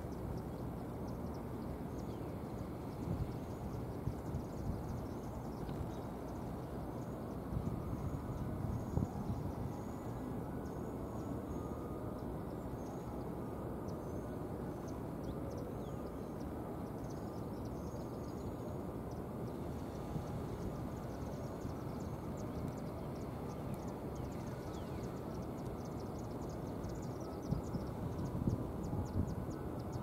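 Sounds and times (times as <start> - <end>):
faint high-pitched chirps: 0.0 - 30.0
low outdoor background rumble: 0.0 - 30.0.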